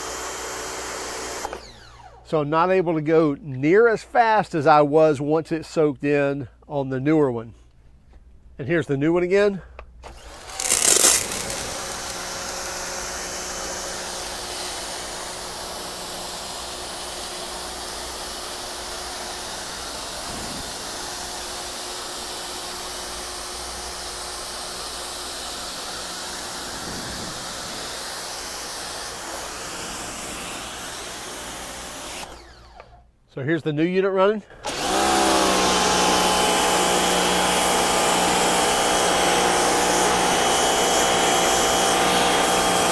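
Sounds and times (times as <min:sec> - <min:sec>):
motor and pump humming: 0:00.0 - 0:02.2, 0:10.0 - 0:33.0, 0:34.6 - 0:42.9
pressure washer water spray hissing: 0:10.4 - 0:32.4.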